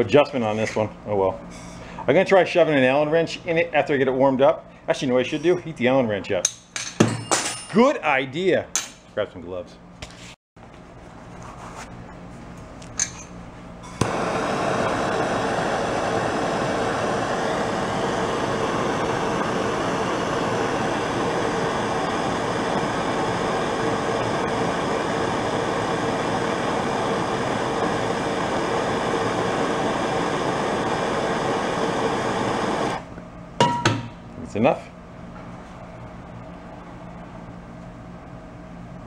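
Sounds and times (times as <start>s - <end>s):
torch igniting click: 13.9s - 33.0s
torch flame hissing: 14.0s - 33.1s.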